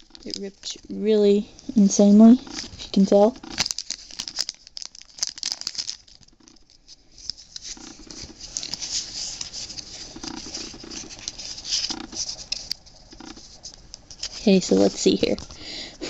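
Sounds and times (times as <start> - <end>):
foil wrapper crinkling: 0.0 - 0.8, 2.4 - 15.5
cards scratching together: 6.8 - 15.4.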